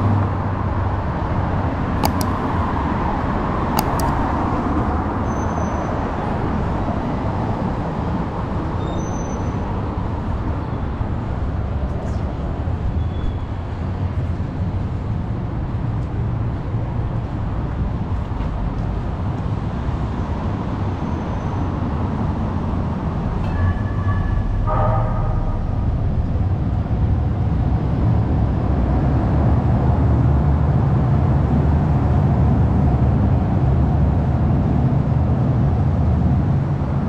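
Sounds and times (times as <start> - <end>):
street traffic rumble: 0.0 - 37.0
sharp clicks: 2.0 - 2.6, 3.8 - 4.3.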